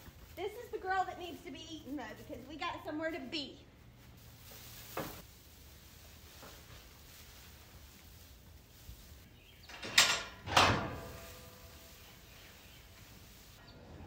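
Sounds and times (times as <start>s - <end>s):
metal gate clanking and ringing: 9.6s - 11.7s.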